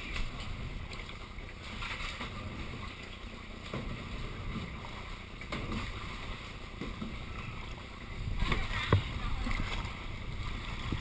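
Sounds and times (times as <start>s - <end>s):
paddle splashes: 0.0s - 11.0s
water lapping around kayak: 0.0s - 11.0s.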